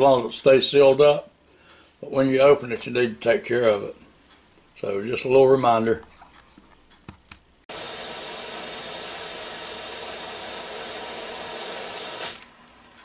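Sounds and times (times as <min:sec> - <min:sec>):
pressure cooker steam hissing: 0:07.7 - 0:12.8.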